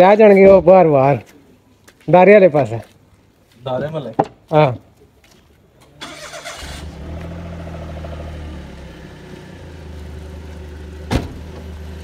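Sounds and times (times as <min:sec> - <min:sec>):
car engine starting and idling: 0:05.9 - 0:12.0.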